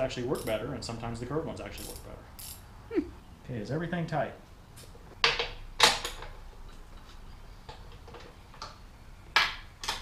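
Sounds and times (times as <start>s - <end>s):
metal tools clinking on steel: 0.3s - 0.6s.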